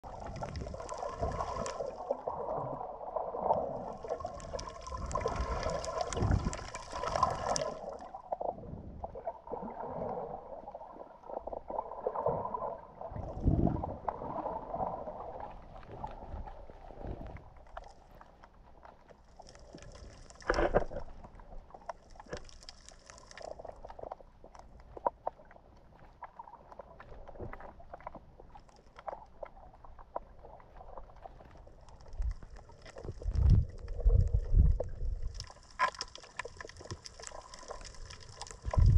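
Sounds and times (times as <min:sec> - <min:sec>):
water sloshing and gurgling underwater: 0:00.0 - 0:38.9.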